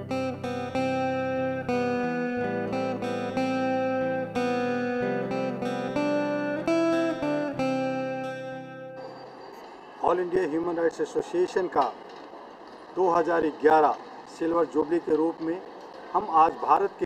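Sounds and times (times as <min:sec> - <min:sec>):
plucked string music: 0:00.0 - 0:09.6.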